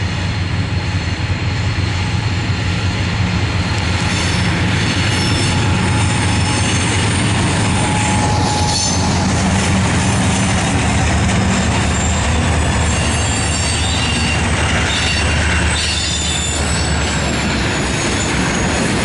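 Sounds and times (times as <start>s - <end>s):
diesel locomotive engines droning: 0.0s - 19.0s
wheel squeal: 3.6s - 9.7s, 11.5s - 19.0s.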